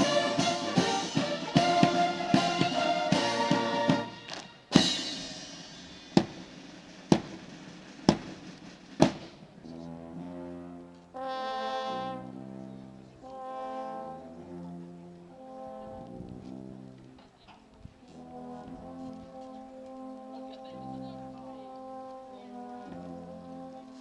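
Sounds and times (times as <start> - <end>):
brass chords: 0.0 - 8.4, 9.5 - 17.2, 18.1 - 24.0
drum and cymbal strikes: 0.0 - 9.6.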